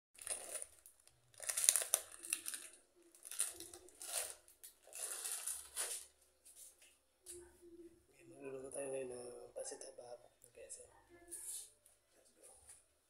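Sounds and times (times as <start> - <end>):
plastic packet crinkling: 0.2 - 6.1.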